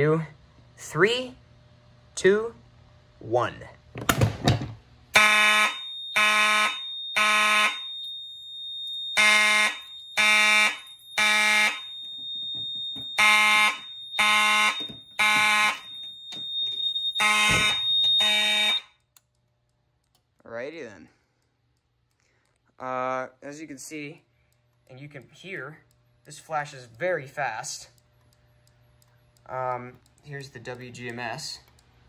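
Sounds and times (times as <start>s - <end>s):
fire alarm horn blasts: 5.1s - 19.1s
steady high-pitched tone: 5.8s - 18.8s.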